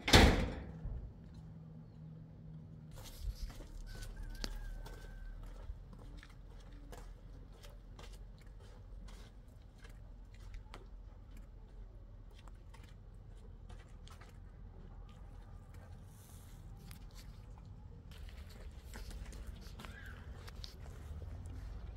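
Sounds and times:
footsteps crunching on gravel: 2.9s - 11.0s, 18.1s - 21.9s.

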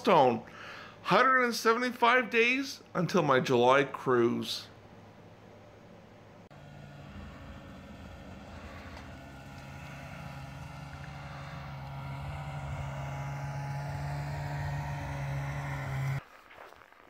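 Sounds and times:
snowmobile engine driving past: 6.5s - 16.2s.

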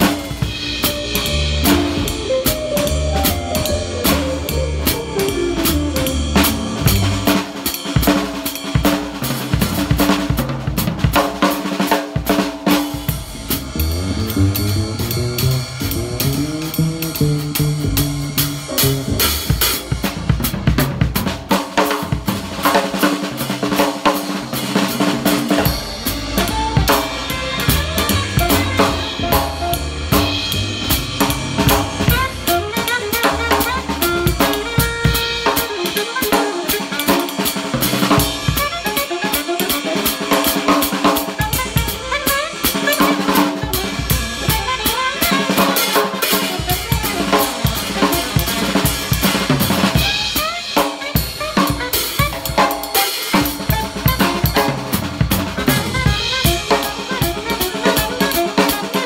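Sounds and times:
upright bass: 0.0s - 7.6s, 13.0s - 21.4s, 22.1s - 35.5s, 41.6s - 45.2s, 53.6s - 58.5s
drum kit: 0.0s - 59.0s
jazz big band playing: 0.0s - 59.0s.

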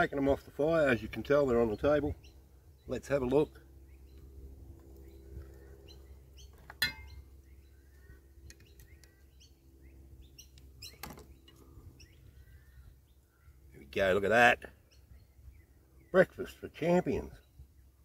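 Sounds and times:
birds chirping: 0.0s - 18.0s
metal iron clinking: 6.7s - 7.2s.

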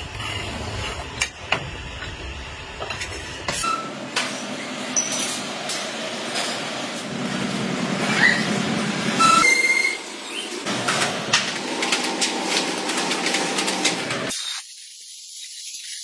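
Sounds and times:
steel roll rumbling on concrete: 0.0s - 3.5s
factory noise: 0.0s - 14.6s.

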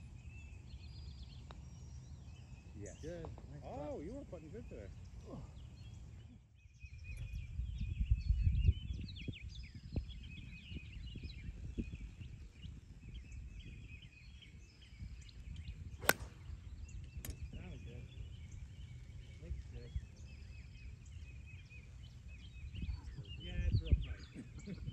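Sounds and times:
golf club striking ball: 16.0s - 16.6s.

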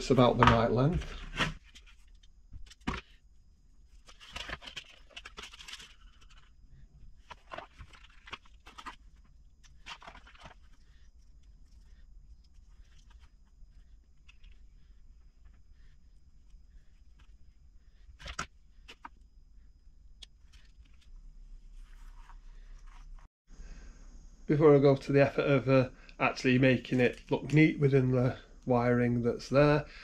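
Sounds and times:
plastic parts boxes handled: 0.0s - 3.2s, 3.9s - 10.8s.

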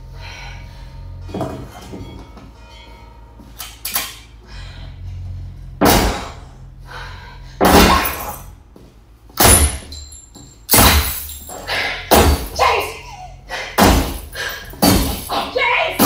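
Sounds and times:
low rumble: 4.2s - 10.3s
glass breaking: 7.6s - 8.5s, 9.4s - 12.6s, 13.8s - 16.0s.

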